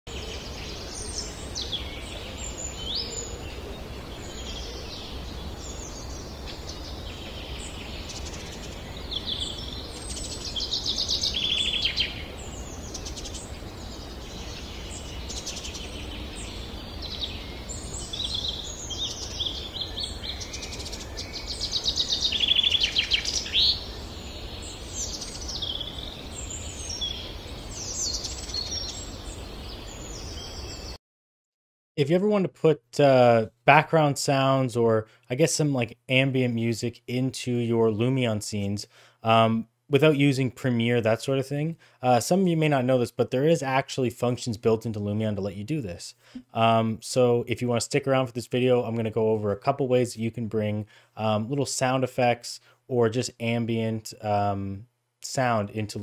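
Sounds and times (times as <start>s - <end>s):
birds singing: 0.1s - 31.0s
rapid bird trills: 0.1s - 31.0s.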